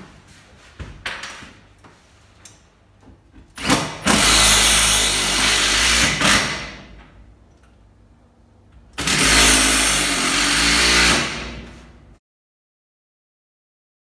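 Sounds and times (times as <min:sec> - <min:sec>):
power tool running: 0:03.6 - 0:06.8, 0:09.0 - 0:11.7.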